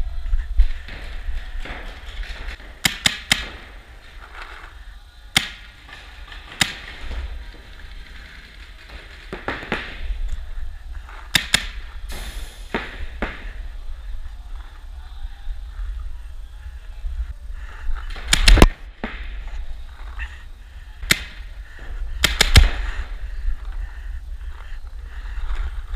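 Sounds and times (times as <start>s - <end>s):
paintball markers firing: 0.8s - 4.5s, 5.3s - 10.2s, 11.3s - 11.8s, 18.2s - 19.4s, 21.0s - 21.5s, 22.2s - 22.9s.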